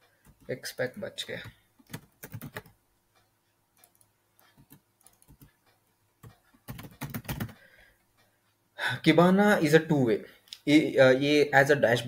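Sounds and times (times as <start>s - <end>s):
keyboard keys clicking: 1.8s - 2.8s, 3.7s - 7.6s.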